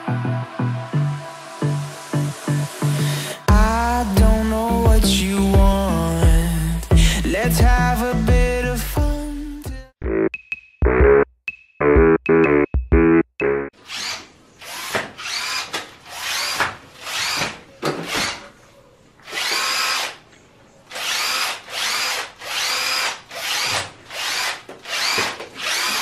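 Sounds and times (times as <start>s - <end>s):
cordless drill whining: 13.8s - 18.4s, 19.2s - 20.2s, 20.9s - 26.0s.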